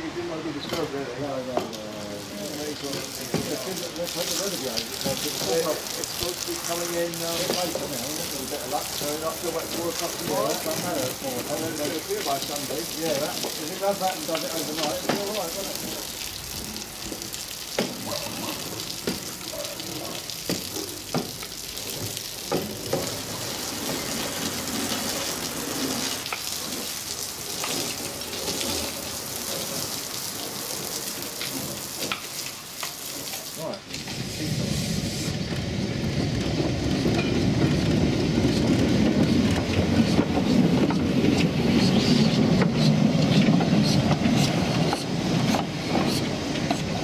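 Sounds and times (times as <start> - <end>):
hose water spraying on carriage: 0.0 - 47.0
locomotive rumbling along track: 18.0 - 32.0, 33.6 - 47.0
scattered clicks and knocks: 20.5 - 23.2, 35.5 - 47.0.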